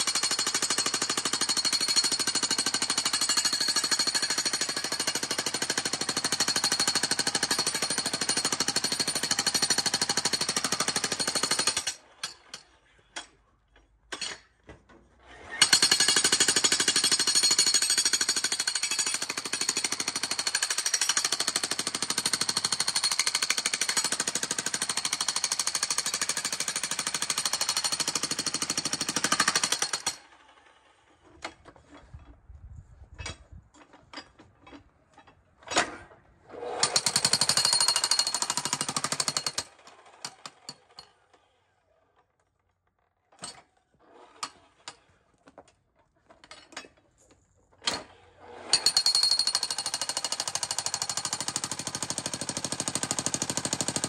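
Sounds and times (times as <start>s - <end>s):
electric jackhammer hammering: 48.6s - 54.0s.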